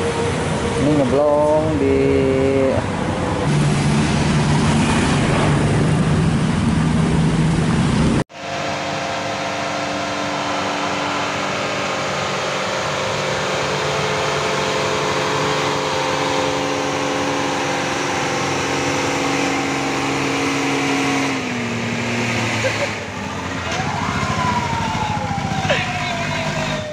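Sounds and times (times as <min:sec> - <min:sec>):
diesel truck engine labouring: 0:00.0 - 0:26.9.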